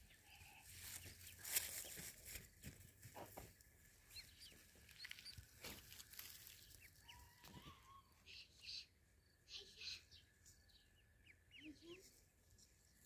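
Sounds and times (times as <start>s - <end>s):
rustling in dry grass: 0.1s - 7.9s
ducklings peeping: 3.9s - 12.8s.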